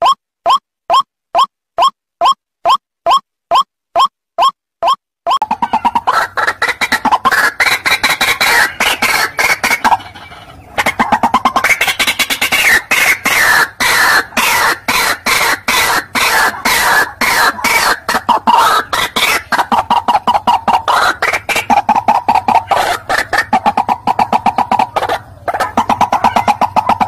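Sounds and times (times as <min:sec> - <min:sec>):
waterhen calling harshly: 0:05.4 - 0:27.0.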